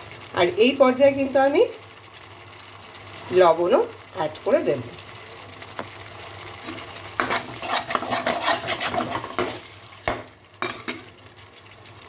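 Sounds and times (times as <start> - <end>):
spatula scraping paste in a pan: 6.6 - 9.8
spatula clacking against pan: 7.2 - 11.1.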